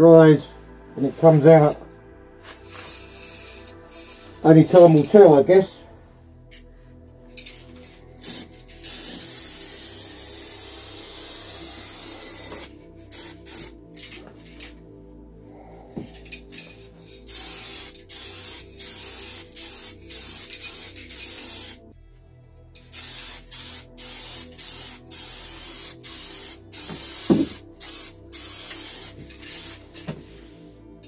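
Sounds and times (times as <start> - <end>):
spray can hissing: 2.5 - 5.1, 8.2 - 14.7, 16.6 - 21.8, 22.8 - 30.1.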